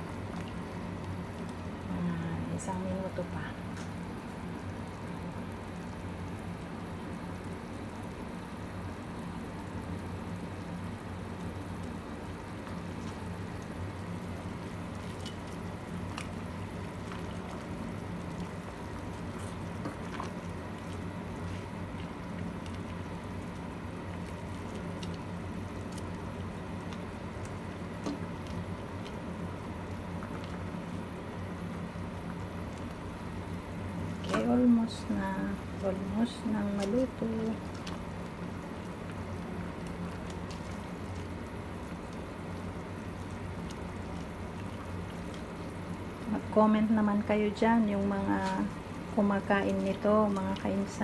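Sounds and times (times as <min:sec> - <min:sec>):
soup boiling and bubbling: 0:00.0 - 0:51.0.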